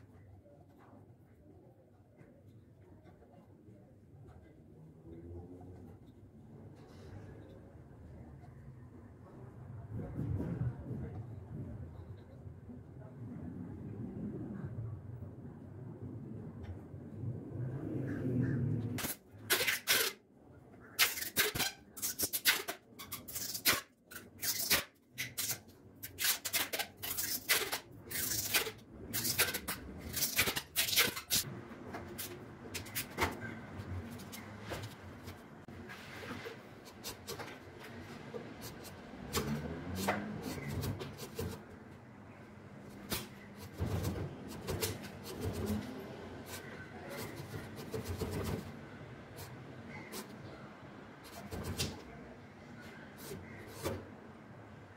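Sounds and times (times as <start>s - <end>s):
scraping strokes on wood: 43.0s - 50.4s.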